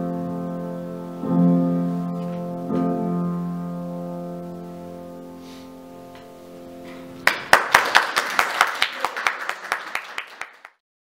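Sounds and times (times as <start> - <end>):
grand piano chord: 0.0 - 7.6
audience applause: 7.2 - 10.8.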